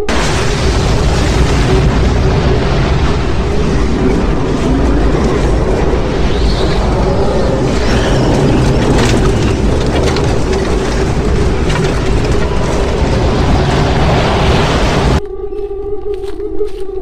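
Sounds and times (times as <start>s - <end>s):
loud roar with deep rumble: 0.0s - 15.2s.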